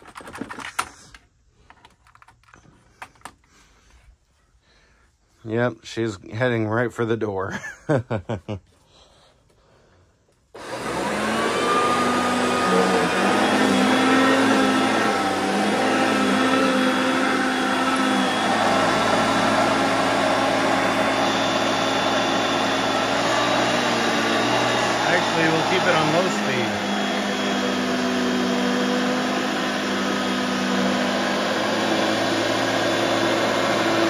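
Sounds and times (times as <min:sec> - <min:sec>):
vacuum cleaner motor running: 0:10.5 - 0:34.0.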